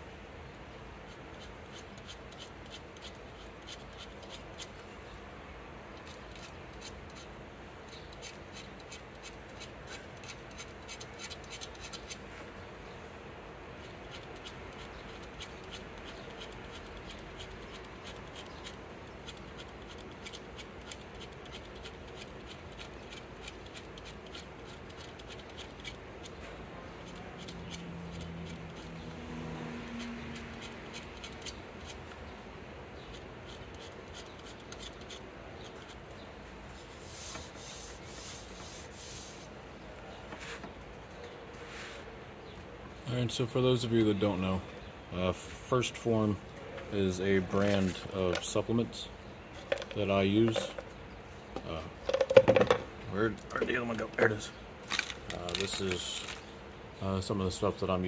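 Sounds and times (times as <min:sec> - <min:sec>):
blade scratching painted shaft: 0:01.0 - 0:04.8, 0:06.0 - 0:12.3, 0:13.8 - 0:32.2, 0:33.0 - 0:39.5.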